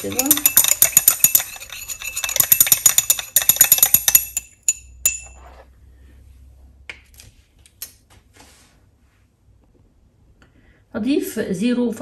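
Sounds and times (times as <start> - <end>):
glass rod clinking in beaker: 0.0 - 5.4
ringing glass clinks: 0.0 - 5.4.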